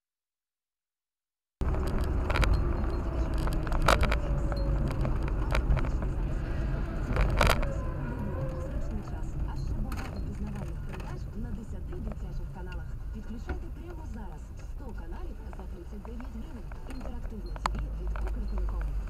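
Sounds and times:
sharp clicks or rattles: 1.6 - 6.2
car road and engine rumble: 1.6 - 19.0.

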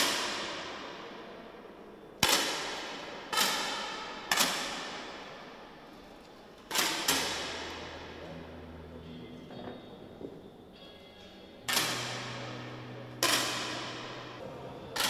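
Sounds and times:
air rifle shots ringing: 2.2 - 5.8, 6.7 - 8.3, 11.7 - 14.4.

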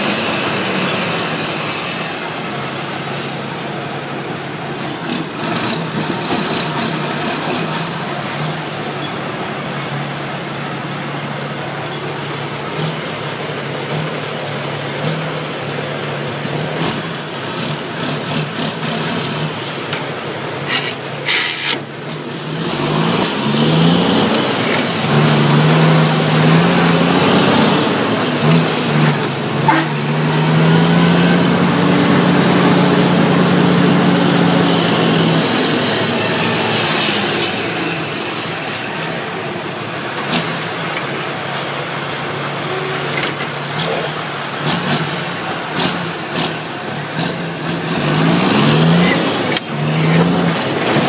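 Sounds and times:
diesel truck engine from inside cab: 0.0 - 51.0.

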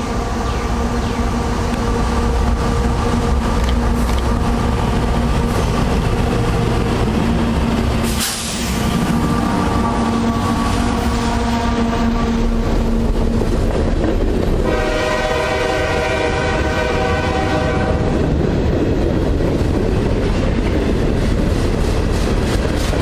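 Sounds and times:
freight train wheels rumbling: 0.0 - 23.0
train horn: 9.0 - 13.1, 14.6 - 18.3.

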